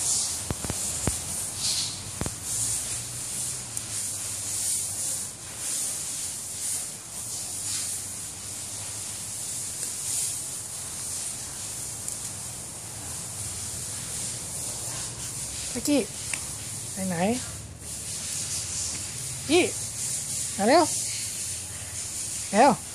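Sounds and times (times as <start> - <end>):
pulsing high-pitched hiss: 0.0 - 22.9.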